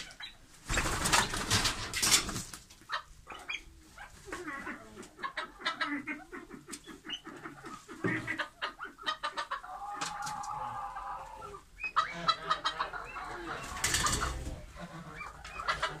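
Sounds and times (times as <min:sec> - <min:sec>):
chickens clucking: 0:00.0 - 0:16.0
wings flapping: 0:00.6 - 0:02.8.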